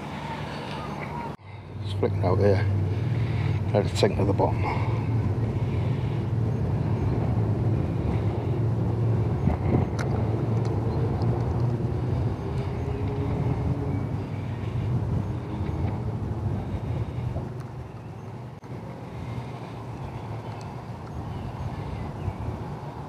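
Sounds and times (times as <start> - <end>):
low mechanical rumble: 0.0 - 23.0.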